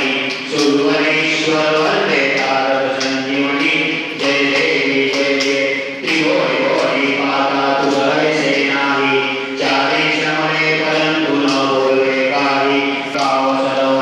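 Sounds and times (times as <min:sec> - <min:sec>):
group chanting in unison: 0:00.0 - 0:14.0
hands clapping in time: 0:00.0 - 0:14.0
man singing into a microphone: 0:00.0 - 0:14.0.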